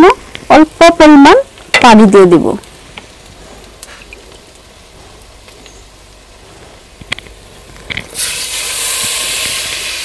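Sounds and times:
loud steady sizzle: 0:00.0 - 0:10.0
oil frying in a pot: 0:00.0 - 0:10.0.

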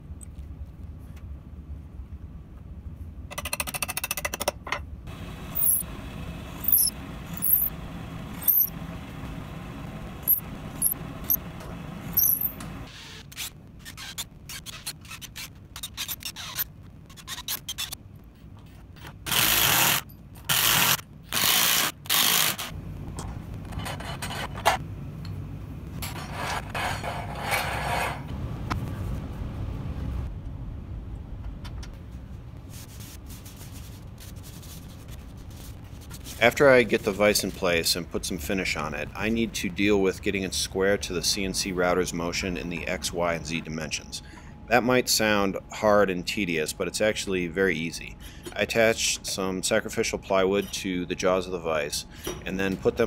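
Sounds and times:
vise squeaking: 0:05.6 - 0:05.9, 0:06.6 - 0:07.7, 0:08.4 - 0:08.7, 0:10.2 - 0:11.4, 0:12.1 - 0:12.6.

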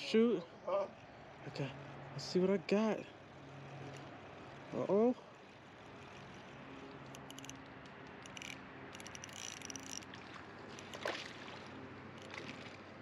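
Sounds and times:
fishing reel gears whirring: 0:03.6 - 0:04.5, 0:05.7 - 0:11.2, 0:12.0 - 0:12.5
reel clicking: 0:06.0 - 0:11.1, 0:12.1 - 0:12.4.

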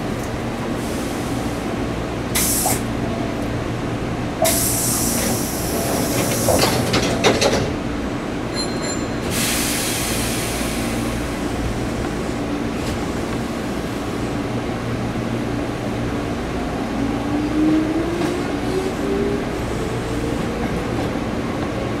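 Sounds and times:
wheels clicking over rail joints: 0:05.8 - 0:07.8.

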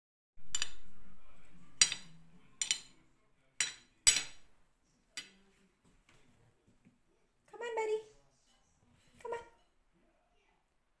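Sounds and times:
metal spoon clinking on ceramic plate: 0:00.4 - 0:00.9, 0:01.8 - 0:03.0, 0:03.6 - 0:04.5.

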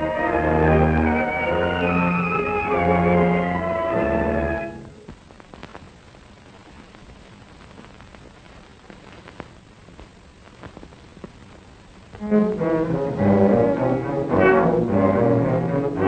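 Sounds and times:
orchestral music: 0:00.0 - 0:05.0, 0:12.2 - 0:16.0
film soundtrack hiss: 0:00.0 - 0:16.0.

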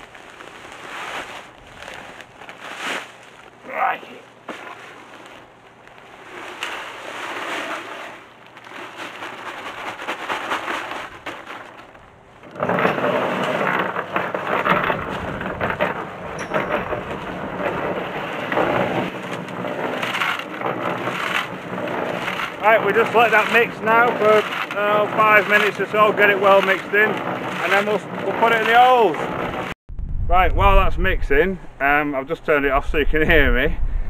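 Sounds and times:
concrete mixer grinding rattle: 0:06.6 - 0:29.8.

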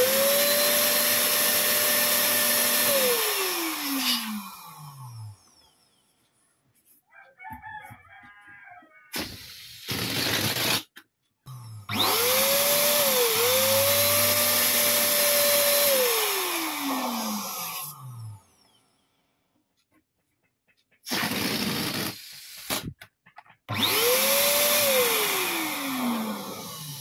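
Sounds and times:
electric balloon pump motor: 0:00.0 - 0:05.5, 0:09.1 - 0:18.5, 0:21.0 - 0:23.0, 0:23.7 - 0:27.0.

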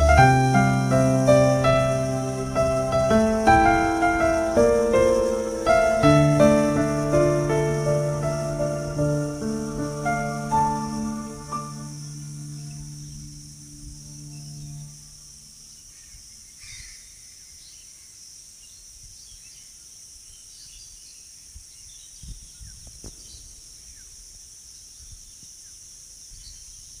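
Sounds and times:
backing music: 0:00.0 - 0:15.3
insect chirring: 0:00.0 - 0:27.0.

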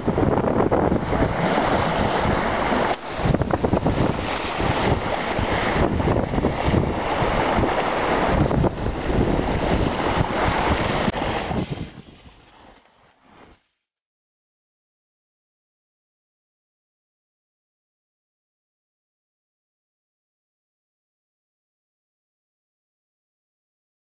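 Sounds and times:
wind buffeting microphone: 0:00.0 - 0:12.8
sea water splashing along hull: 0:00.0 - 0:13.8.

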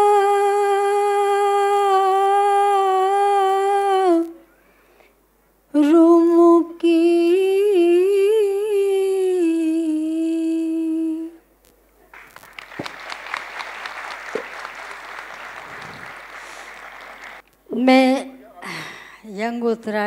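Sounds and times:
audience applauding: 0:12.2 - 0:17.4.

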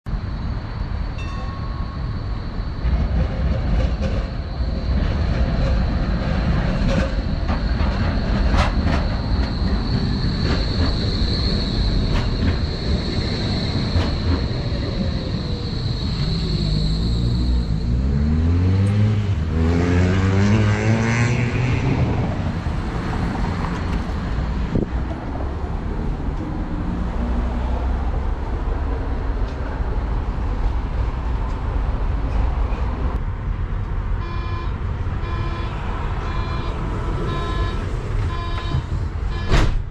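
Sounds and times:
tram electric drive whine: 0:00.1 - 0:39.9
tram running rumble: 0:00.1 - 0:39.9
beeping door warning tone: 0:34.2 - 0:39.7.

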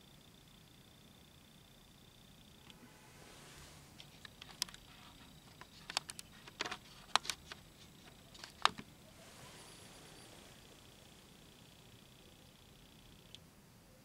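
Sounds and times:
low background hiss: 0:00.0 - 0:14.0
handling clicks and taps: 0:05.5 - 0:08.9.

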